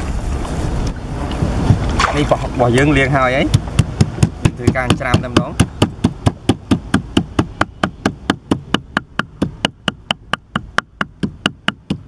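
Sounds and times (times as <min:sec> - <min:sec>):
cleaver chopping on wooden block: 0:03.4 - 0:12.0.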